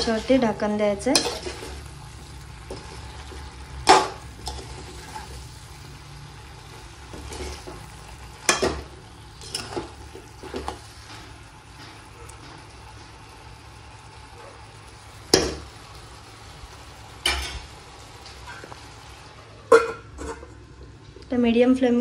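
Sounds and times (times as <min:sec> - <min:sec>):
vegetables sizzling in a pan: 0:00.0 - 0:21.0
utensils clinking against pan: 0:01.0 - 0:01.8, 0:08.4 - 0:12.7, 0:17.2 - 0:17.6.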